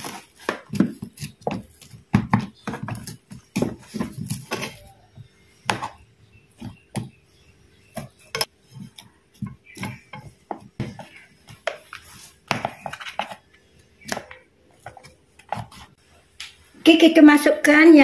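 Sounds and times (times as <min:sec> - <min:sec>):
knocks and scrapes: 0:00.0 - 0:07.2.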